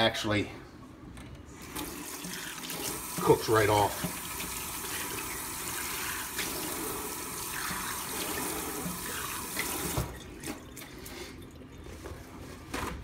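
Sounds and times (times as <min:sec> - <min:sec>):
faucet running into steel sink: 0:01.6 - 0:10.9.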